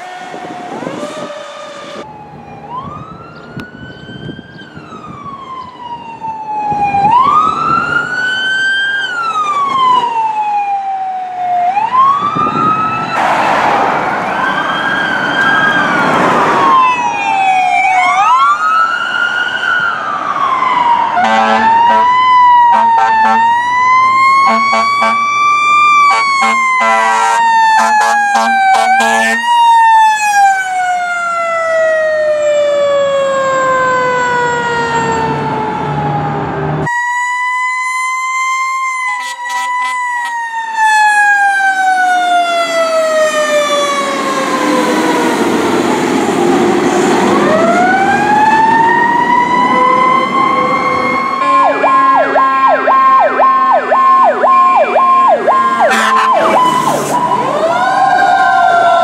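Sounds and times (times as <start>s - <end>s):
fast warbling siren: 0.0s - 13.3s, 14.0s - 59.0s
fire truck sirens wailing: 0.0s - 59.0s
steady high tone: 49.7s - 57.8s.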